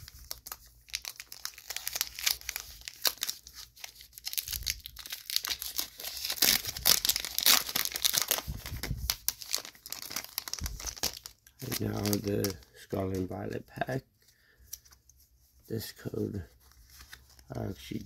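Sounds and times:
foil wrapper crinkling: 0:00.0 - 0:13.5.

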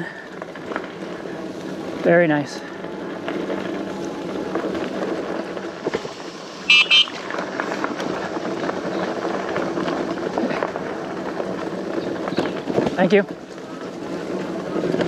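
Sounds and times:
electric bike riding on dirt: 0:00.0 - 0:15.0
electric bike horn beeps: 0:06.7 - 0:07.2.

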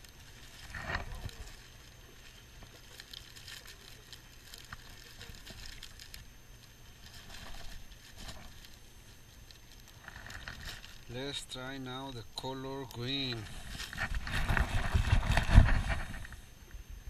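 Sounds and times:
plastic bag crinkling: 0:00.0 - 0:16.4
low steady rumble: 0:00.0 - 0:17.0.

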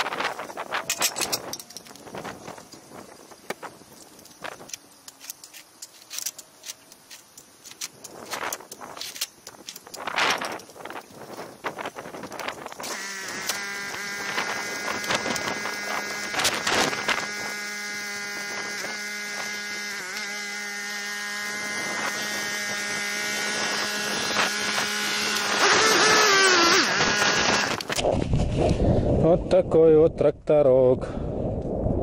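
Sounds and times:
metal clanks: 0:00.7 - 0:02.1.

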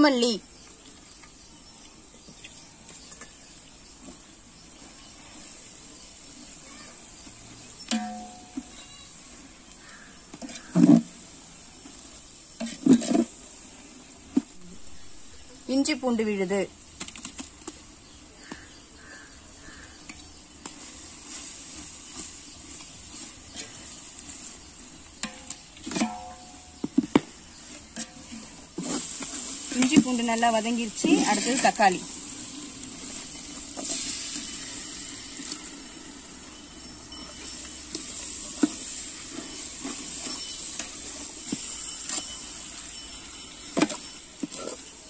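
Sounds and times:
faint steady hiss: 0:00.0 - 0:45.0
food sizzling in oil: 0:00.0 - 0:45.0
ladle stirring in a pot: 0:07.9 - 0:14.4, 0:20.6 - 0:45.0.

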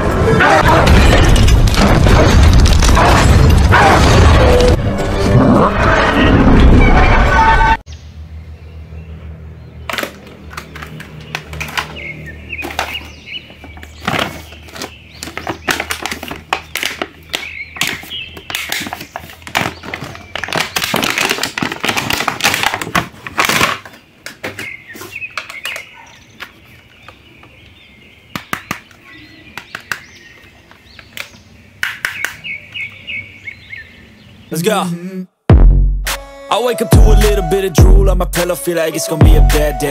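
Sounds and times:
plastic packaging crinkling: 0:13.8 - 0:24.0.

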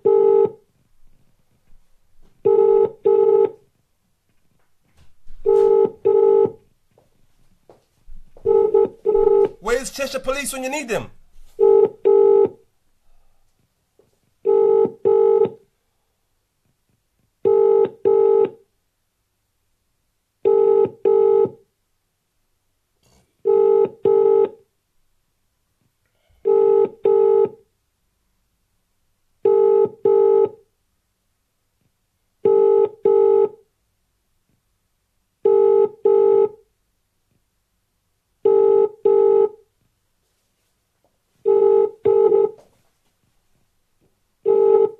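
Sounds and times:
telephone ringing tone: 0:05.5 - 0:06.6, 0:08.5 - 0:09.6, 0:14.5 - 0:15.6, 0:29.5 - 0:30.6, 0:41.5 - 0:42.6, 0:44.5 - 0:44.9.

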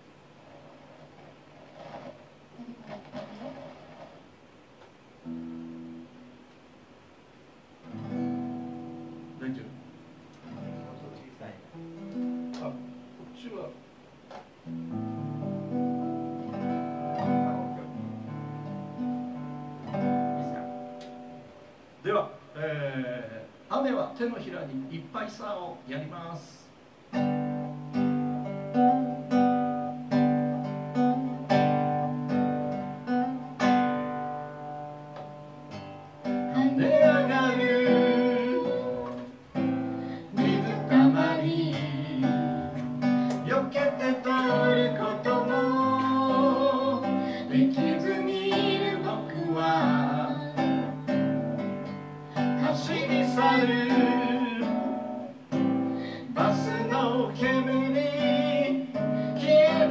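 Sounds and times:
acoustic guitar strumming: 0:05.2 - 0:06.3, 0:07.8 - 0:13.4, 0:14.6 - 0:21.8, 0:27.1 - 0:59.9
man singing: 0:36.5 - 0:39.3, 0:40.3 - 0:50.9, 0:52.6 - 0:55.3, 0:56.2 - 0:59.9.

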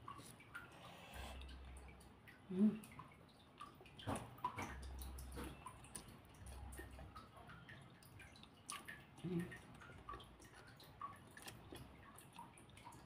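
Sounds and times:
wet chewing mouth clicks: 0:08.4 - 0:12.6.

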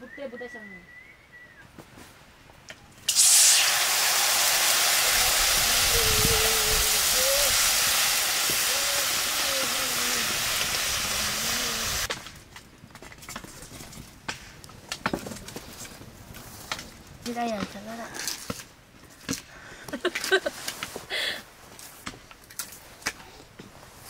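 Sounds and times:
water pouring into a metal pan: 0:03.1 - 0:12.1.

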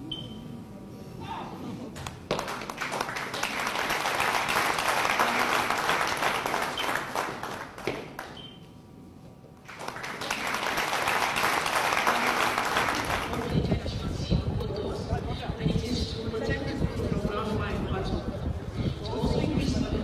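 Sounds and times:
audience applauding: 0:02.0 - 0:08.4, 0:09.6 - 0:13.5.

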